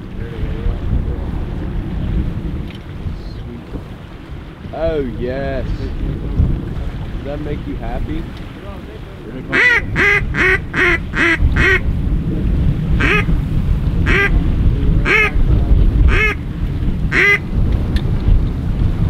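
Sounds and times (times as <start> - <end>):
wind rumble on microphone: 0.0 - 19.0
goose-like honks: 8.9 - 11.9, 12.9 - 13.4, 14.0 - 14.4, 15.0 - 17.5.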